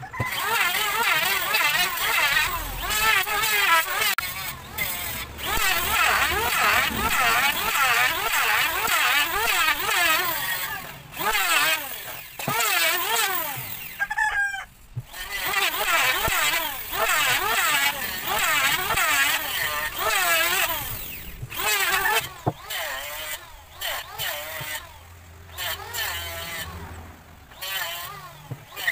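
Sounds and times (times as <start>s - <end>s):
electric wood planer running: 0.0s - 14.2s, 14.9s - 28.9s.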